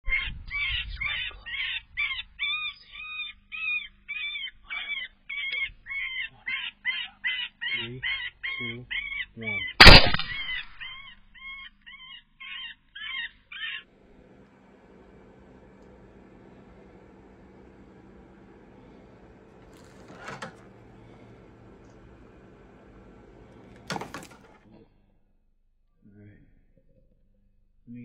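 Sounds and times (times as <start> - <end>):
rifle shot: 9.8 - 10.9.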